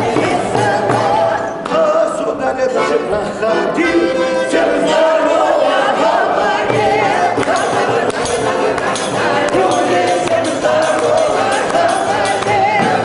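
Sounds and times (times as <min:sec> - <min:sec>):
accordion: 0:00.0 - 0:13.0
mixed choir singing folk song: 0:00.0 - 0:13.0
short percussive strokes: 0:06.5 - 0:13.0.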